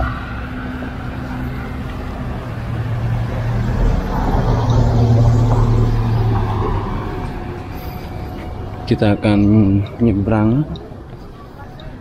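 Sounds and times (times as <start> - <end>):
van driving past: 0.0 - 9.0.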